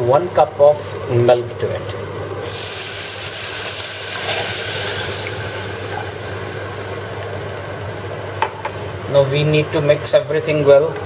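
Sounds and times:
milk hissing in hot saucepan: 2.4 - 7.9.

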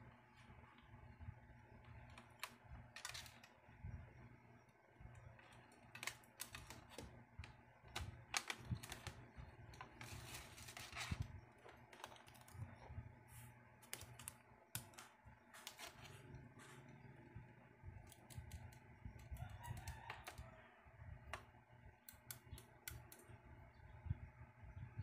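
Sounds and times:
box set on bench: 1.7 - 3.8, 4.8 - 12.8.

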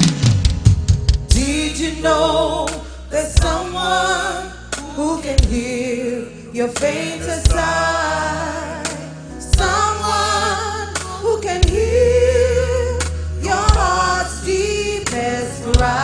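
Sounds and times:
live band with drums: 0.0 - 1.8, 2.7 - 3.9, 4.7 - 5.8, 6.7 - 7.9, 8.8 - 10.0, 10.9 - 12.1, 13.0 - 14.4, 15.0 - 16.0
group singing a gospel hymn: 1.3 - 16.0.

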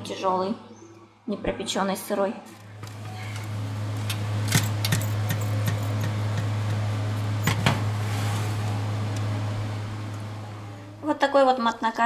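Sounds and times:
oven fan humming: 2.6 - 12.0.

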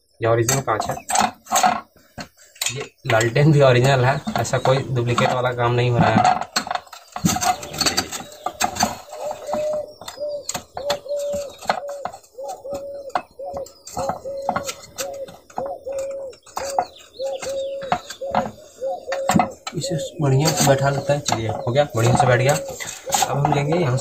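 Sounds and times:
glass globe squeaking: 3.9 - 24.0.

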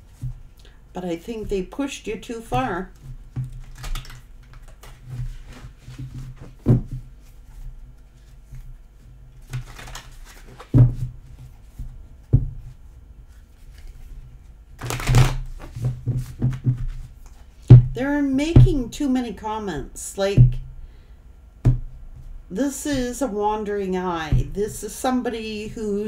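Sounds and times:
cards being riffle-shuffled: 3.5 - 6.6, 9.4 - 10.8, 13.3 - 14.2, 14.8 - 17.4.

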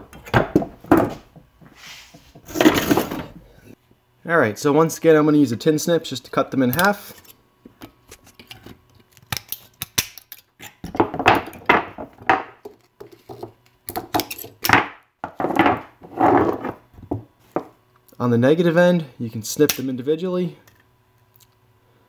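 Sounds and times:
tin snips cutting metal strip: 8.5 - 10.8
cells scraping and knocking on wood: 15.2 - 17.7.

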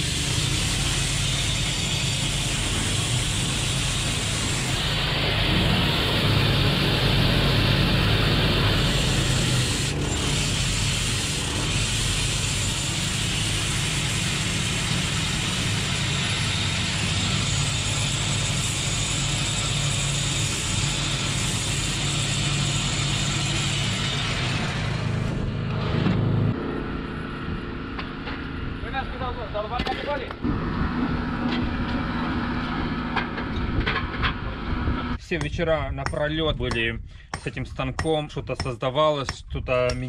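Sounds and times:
stone grinding hiss: 0.0 - 7.8, 8.4 - 24.2
petrol engine drone: 0.0 - 35.3.

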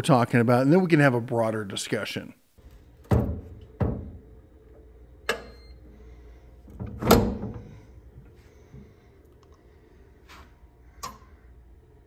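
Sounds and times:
metal bolts clunking: 5.3 - 5.7.

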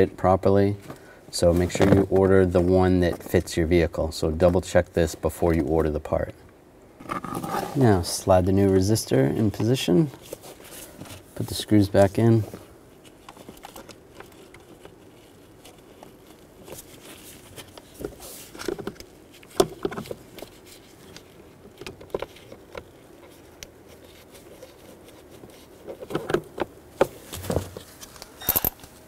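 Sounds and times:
rustling: 7.0 - 29.0.

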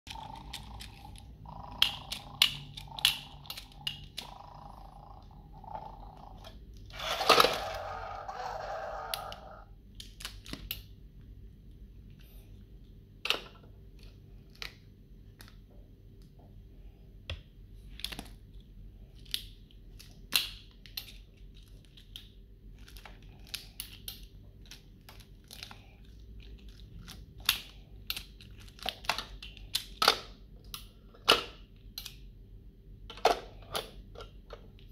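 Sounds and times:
plastic toy claw clicking: 0.1 - 5.3.

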